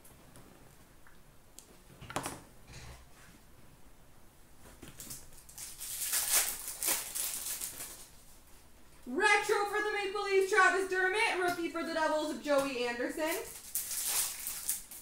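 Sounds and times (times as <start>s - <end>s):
foil wrapper tearing and crinkling: 5.0s - 8.2s, 13.5s - 15.0s.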